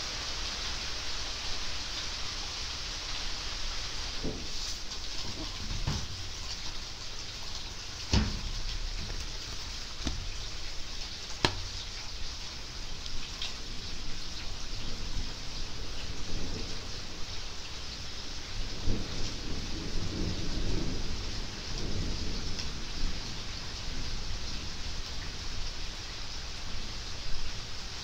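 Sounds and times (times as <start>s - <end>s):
steady rain falling: 0.0s - 28.0s
sharp taps: 11.4s - 11.8s.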